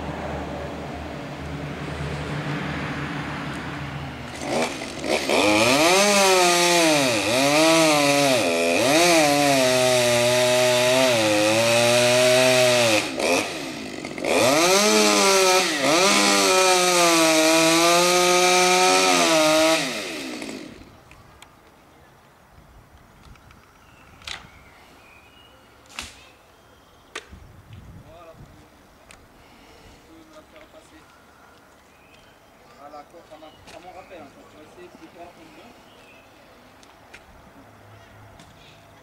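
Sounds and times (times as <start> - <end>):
chainsaw cutting into tree trunk: 4.3 - 20.9
chainsaw idling: 4.3 - 20.9.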